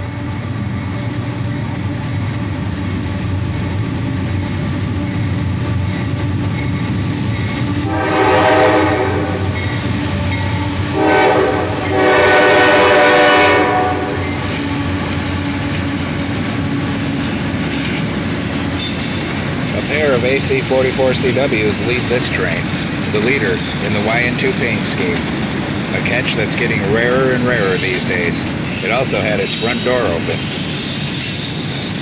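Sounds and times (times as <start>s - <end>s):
diesel locomotives rumbling past: 0.0s - 32.0s
locomotive air horn blasts: 7.8s - 9.6s, 10.8s - 14.4s.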